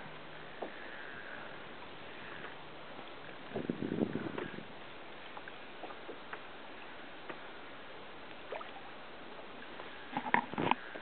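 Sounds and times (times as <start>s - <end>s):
water lapping against kayak hull: 0.0s - 11.0s
faint ticks: 2.2s - 2.6s.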